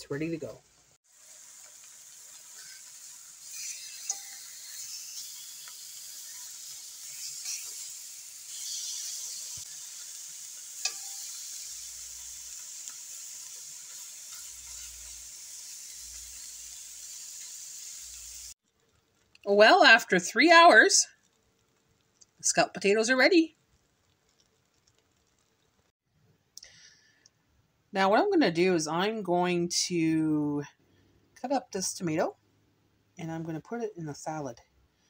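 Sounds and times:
meat sizzling in a frying pan: 1.0 - 18.7.

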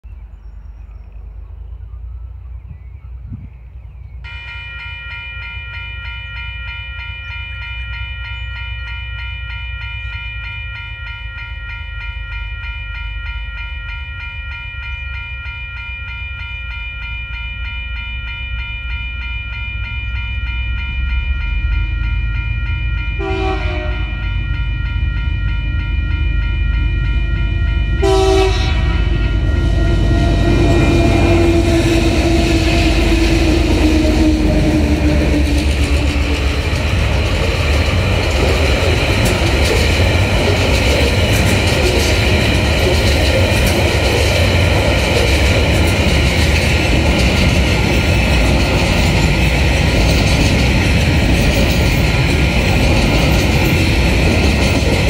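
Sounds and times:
locomotive and wheels rumbling: 0.0 - 55.0
train horn blasts: 4.3 - 7.4, 23.2 - 25.8, 27.2 - 36.5
level crossing bell ringing: 4.3 - 55.0.

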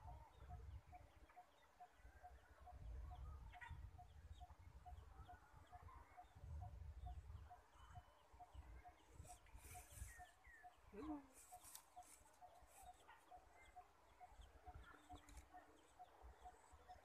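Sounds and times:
low rumble of wind: 1.9 - 11.0
birds or insects chirping: 7.1 - 17.0.

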